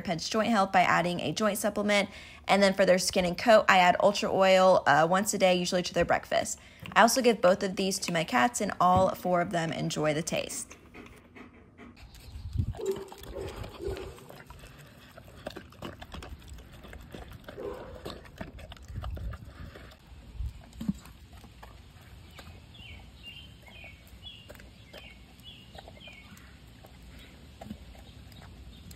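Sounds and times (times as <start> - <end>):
dog chewing and licking: 6.7 - 28.9.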